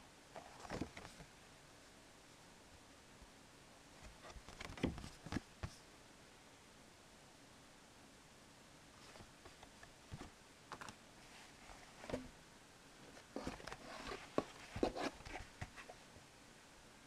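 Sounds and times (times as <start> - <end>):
plastic and paper rustling: 0.4 - 1.2, 4.0 - 5.8, 13.1 - 16.0.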